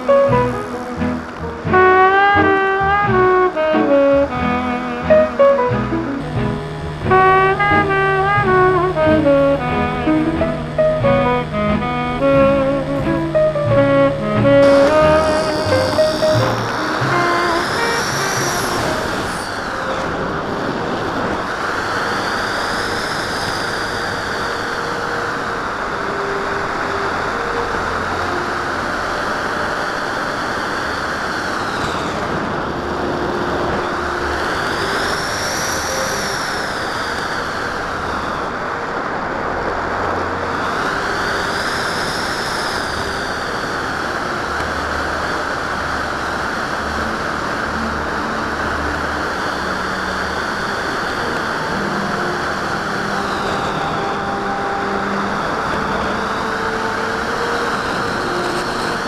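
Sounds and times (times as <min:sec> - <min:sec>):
airflow rushing: 0:00.0 - 0:29.5
high whistle: 0:13.8 - 0:19.8.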